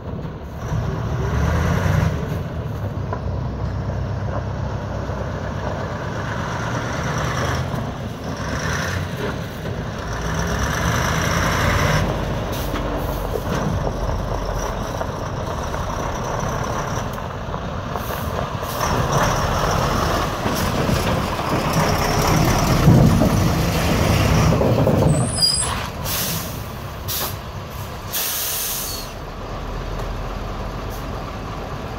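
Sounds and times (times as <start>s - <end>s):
truck diesel engine: 0.0s - 31.9s
air brakes hissing: 25.1s - 29.2s.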